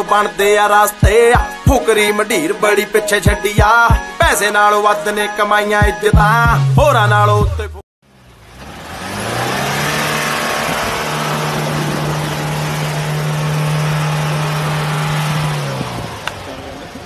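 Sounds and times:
water splashing around wheels: 8.2s - 17.0s
engine revving hard: 8.5s - 17.0s.

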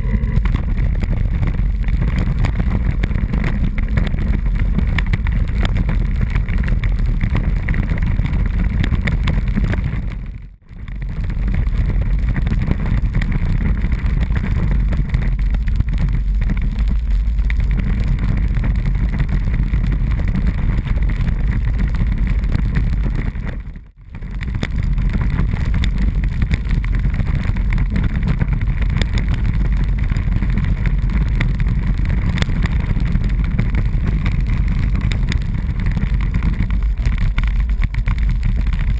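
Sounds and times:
camera rattling over cobblestones: 0.0s - 38.9s
wind on microphone: 0.0s - 38.9s.

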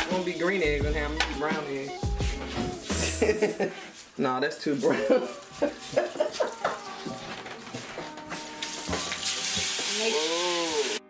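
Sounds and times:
soft background music: 0.0s - 11.0s
faucet running into sink: 4.8s - 11.0s.

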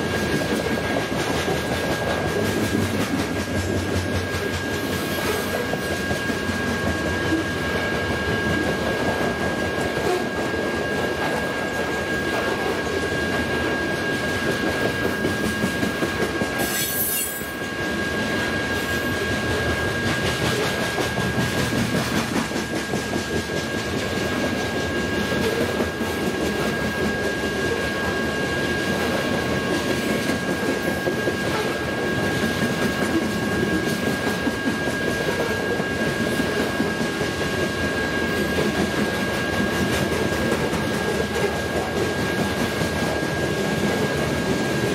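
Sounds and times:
train wheels clacking on rails: 0.0s - 44.9s
high-pitched wheel squeal: 16.6s - 17.6s.

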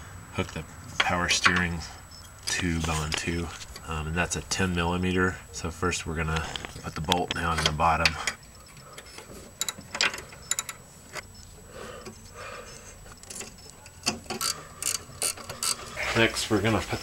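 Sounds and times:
ratchet wrench clicking: 14.3s - 15.8s.

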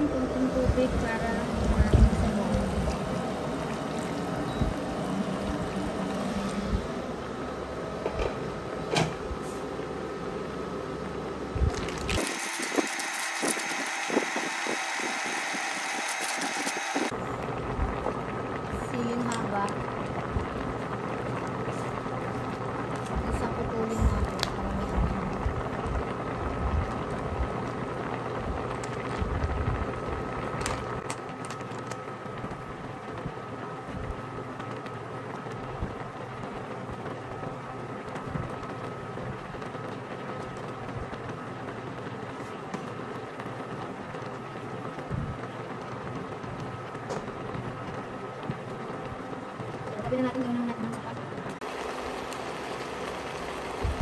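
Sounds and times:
broth bubbling at a boil: 0.0s - 7.4s, 9.8s - 54.0s
wok hissing: 11.7s - 27.3s.

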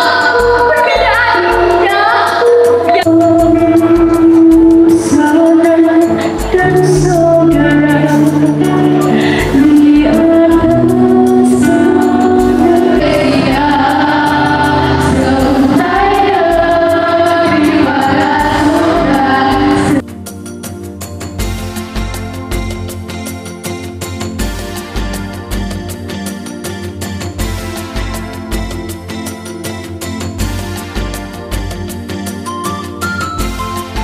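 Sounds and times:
girl singing into a microphone: 0.0s - 20.0s
amplified music with steady beat: 0.0s - 34.0s.

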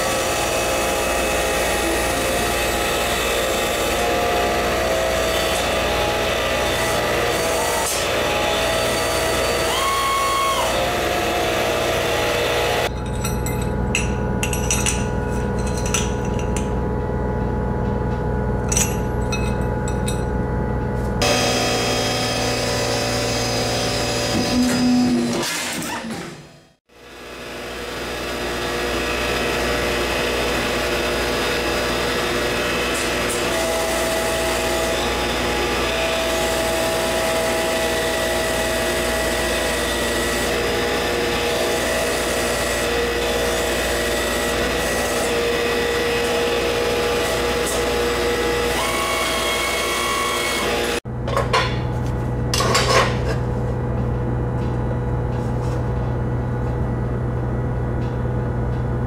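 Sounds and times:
hydraulic press running: 0.0s - 59.0s
steady low hum: 12.9s - 21.4s, 51.0s - 59.0s.

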